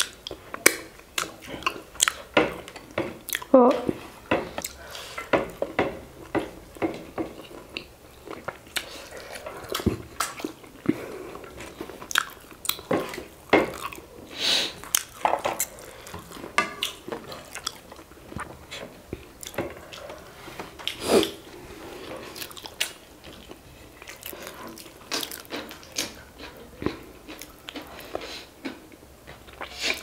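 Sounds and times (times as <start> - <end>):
wet chewing and lip smacks: 0.0 - 3.5, 7.4 - 13.2.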